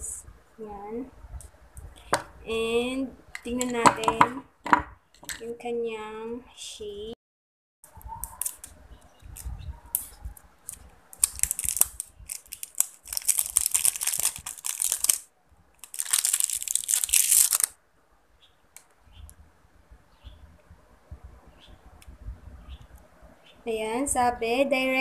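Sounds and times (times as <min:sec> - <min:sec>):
packaging crinkling and tearing: 0:09.4 - 0:17.8.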